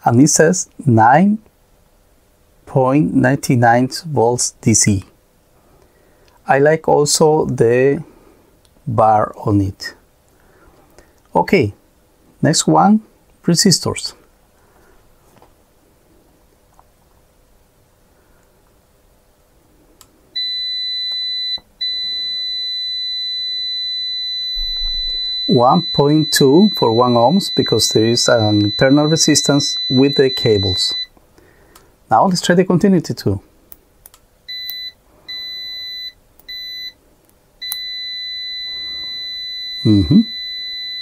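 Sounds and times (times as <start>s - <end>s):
high-pitched continuity beep: 20.4s - 31.1s, 34.5s - 37.0s, 37.6s - 41.0s.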